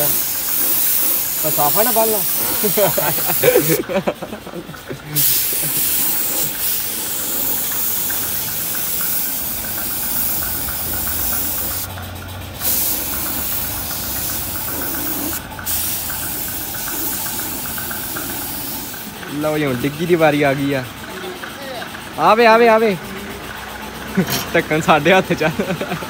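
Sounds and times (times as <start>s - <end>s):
paint spray gun hissing: 0.0s - 4.0s, 5.1s - 11.9s, 12.6s - 19.2s.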